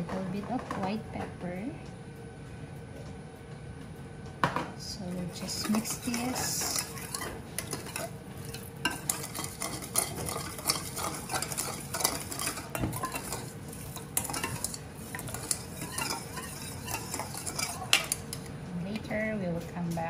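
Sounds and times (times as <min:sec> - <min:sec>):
spoon clinking in metal bowl: 0:05.4 - 0:18.5.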